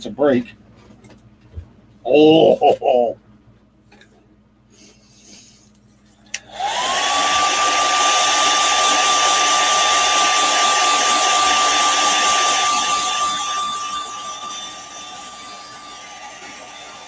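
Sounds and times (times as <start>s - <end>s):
hair dryer motor whine: 6.3s - 17.0s.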